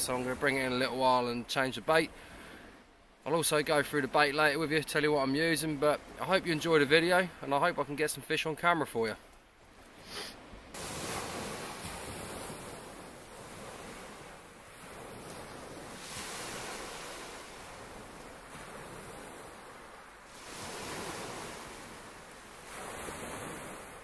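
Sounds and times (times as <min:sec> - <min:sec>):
waves washing up a shingle beach: 0:10.1 - 0:24.0.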